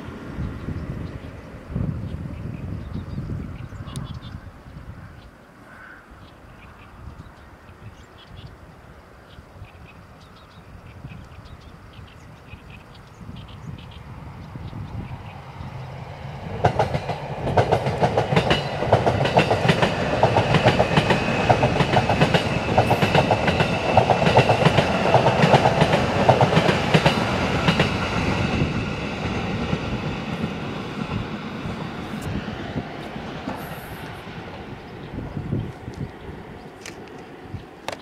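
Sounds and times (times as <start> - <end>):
train rumble and wheel clicks: 0.0 - 4.4, 9.8 - 38.0.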